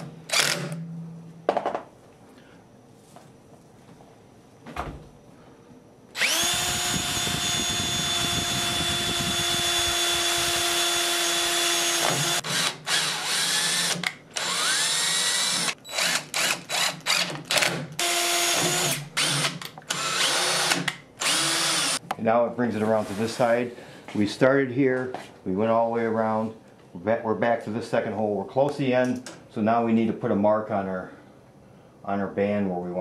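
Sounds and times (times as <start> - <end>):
impact driver trigger bursts: 0.0 - 0.8, 6.2 - 22.0
cordless drill boring through metal: 0.3 - 0.8, 6.2 - 22.0.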